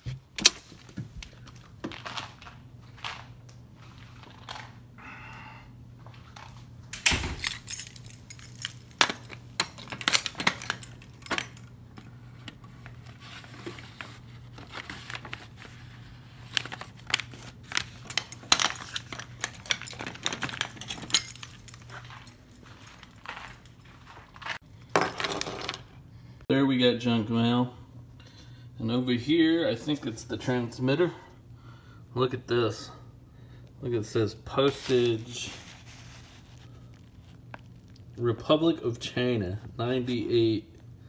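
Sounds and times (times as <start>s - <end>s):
keys jangling in a lock: 7.1s - 11.8s, 17.9s - 23.9s
steady low hum: 25.9s - 41.0s
envelopes rustling: 34.6s - 38.0s.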